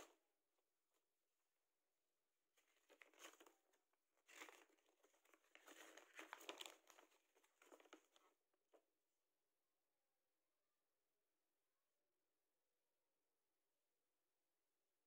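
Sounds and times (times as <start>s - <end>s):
plastic packaging crinkling: 2.6s - 8.3s
paper leaflet rustling: 2.6s - 8.4s.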